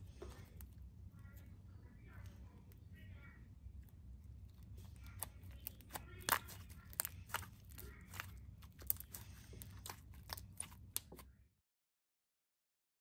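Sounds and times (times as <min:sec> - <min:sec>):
slime clicking and squelching: 0:03.8 - 0:11.2.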